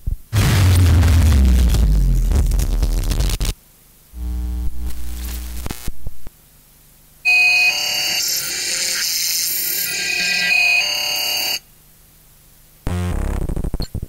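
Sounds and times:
noise burst with deep rumble: 0.1 - 3.6
low buzzing drone: 0.3 - 3.5, 4.2 - 6.0
harsh high-pitched electronic buzz: 0.4 - 3.5, 4.2 - 6.1, 7.3 - 11.6.

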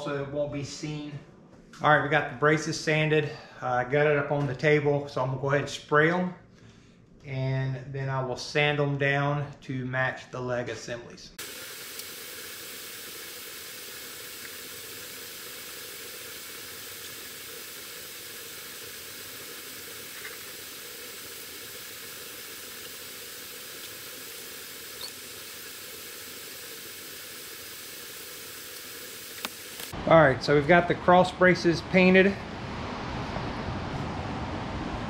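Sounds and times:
spray paint can hissing: 11.4 - 30.0.

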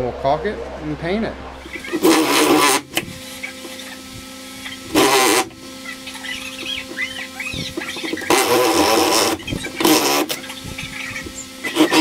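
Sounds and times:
drill boring through wood: 1.6 - 12.0
birds chirping faintly: 5.8 - 8.4.

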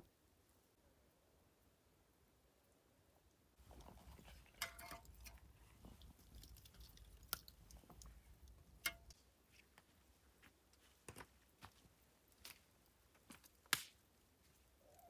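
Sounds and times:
wood fire crackling: 3.6 - 14.6
metal rod scraping: 3.8 - 5.5.

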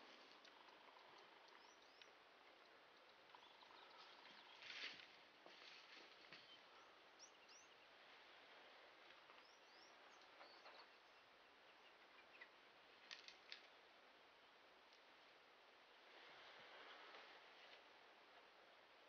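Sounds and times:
faint high bird chirps: 9.3 - 12.6.

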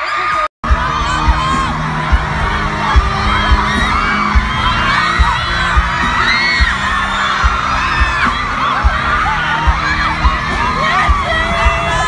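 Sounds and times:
crowd screaming and cheering: 0.0 - 12.0
music: 0.6 - 12.0.

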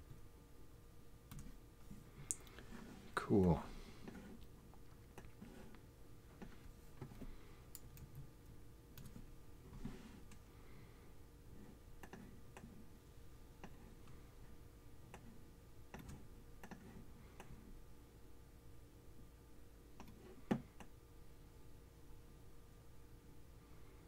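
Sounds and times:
low steady hum: 0.0 - 24.0
computer mouse clicks: 7.7 - 8.2, 8.9 - 9.2, 12.0 - 12.7, 13.6 - 13.9, 15.1 - 17.6, 20.0 - 20.9.

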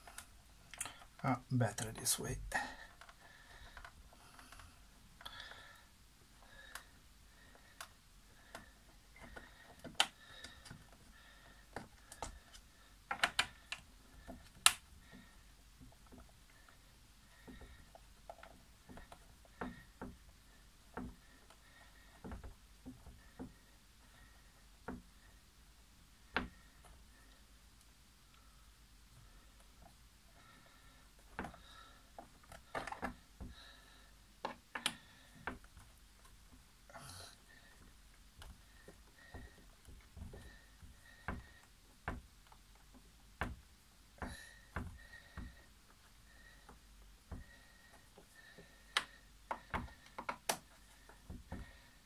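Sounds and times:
plastic parts clicking and tapping: 7.5 - 16.8, 31.1 - 33.6, 34.4 - 36.7, 44.2 - 51.8.

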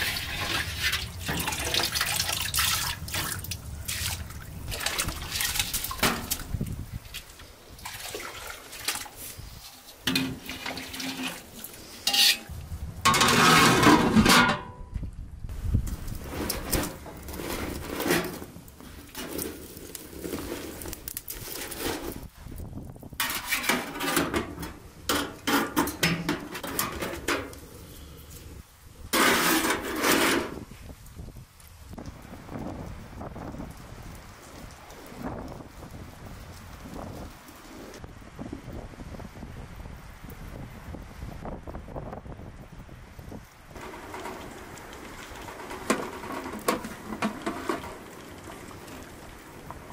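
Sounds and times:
dishes and utensils clinking: 12.0 - 12.5.

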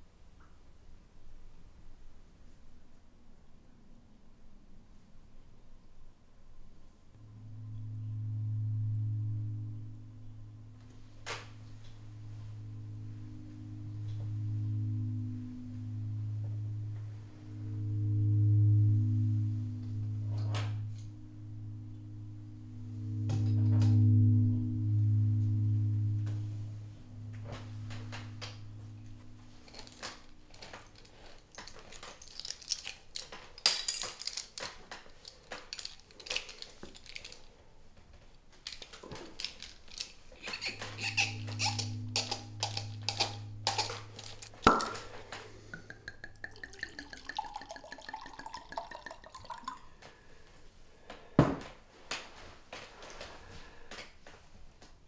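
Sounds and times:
low droning music tone: 1.8 - 34.4, 38.6 - 50.8
wine bottle clinking and opening: 39.4 - 45.1, 45.8 - 49.8
wine pouring into a glass: 45.8 - 49.9.

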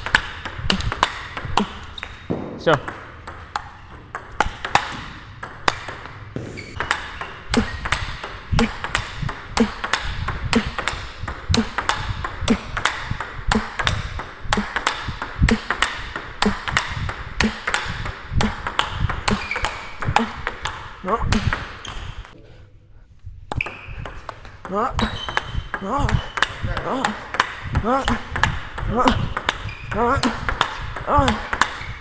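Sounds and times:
table tennis ball clicks: 0.0 - 22.1.

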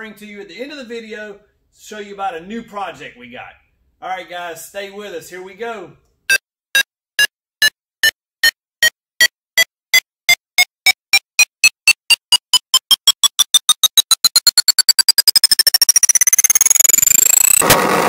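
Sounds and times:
electronic beeps rising in pitch: 10.8 - 17.6.

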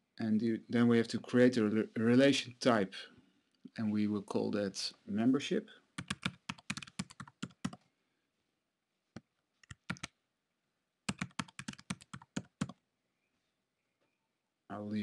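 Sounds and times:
computer keyboard typing: 6.0 - 7.8, 9.6 - 10.1, 11.1 - 12.8.

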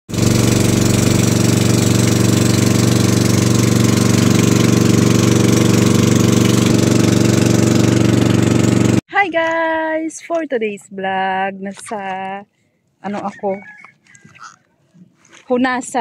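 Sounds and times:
boat engine chugging: 0.1 - 9.0, 13.0 - 15.2.

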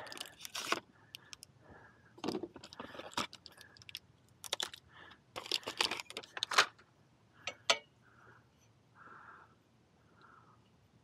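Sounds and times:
plastic packaging crackling: 0.0 - 1.4, 2.2 - 4.8, 5.4 - 6.7.

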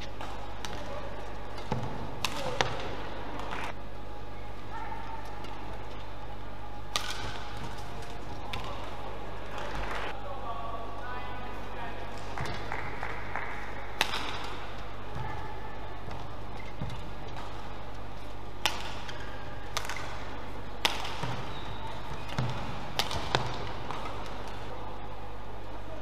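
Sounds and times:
rackets striking shuttlecock: 0.0 - 3.8, 6.9 - 10.1, 12.2 - 24.7.

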